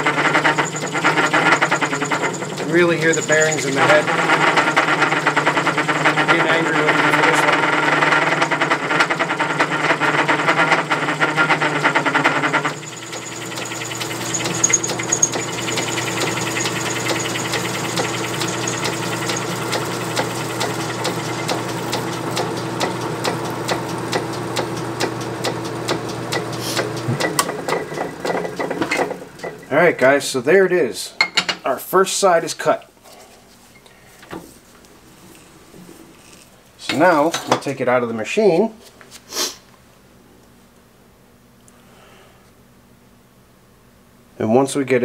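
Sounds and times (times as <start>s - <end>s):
lathe motor hum: 0.0s - 29.7s
lathe tool clattering on metal: 0.0s - 29.7s
headstock bearings whirring: 0.0s - 30.1s.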